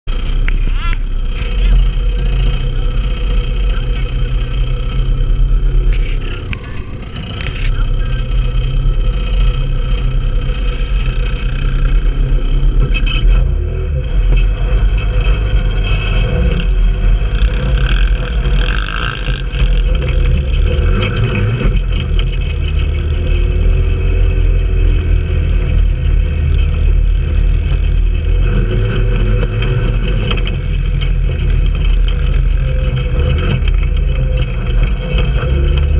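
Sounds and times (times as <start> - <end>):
go-kart engines revving: 0.1 - 35.9.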